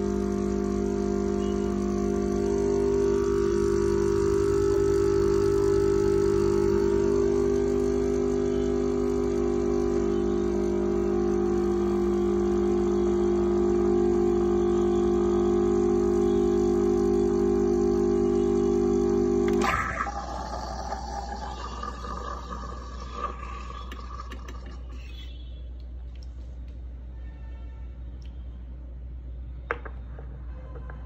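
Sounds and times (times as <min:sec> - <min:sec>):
espresso machine pump humming: 0:00.0 - 0:25.3.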